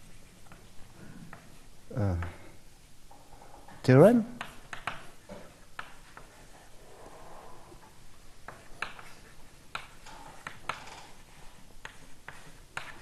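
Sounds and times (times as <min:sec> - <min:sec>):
chalk writing on blackboard: 0:05.5 - 0:06.8, 0:08.4 - 0:13.0.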